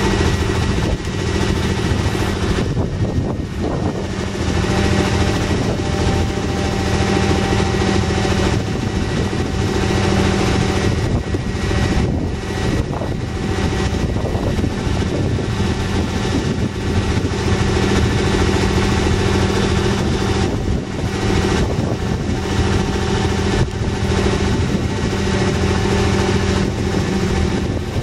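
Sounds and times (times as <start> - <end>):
engine idling: 0.0 - 28.0.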